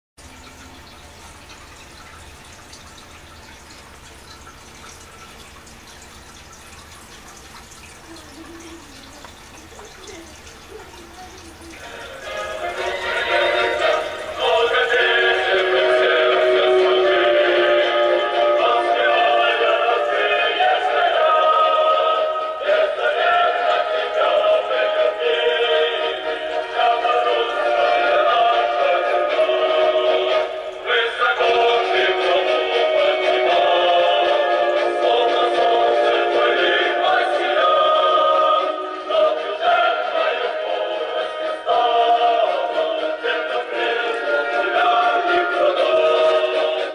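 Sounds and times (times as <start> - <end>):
music with singing over loudspeaker: 11.0 - 46.9.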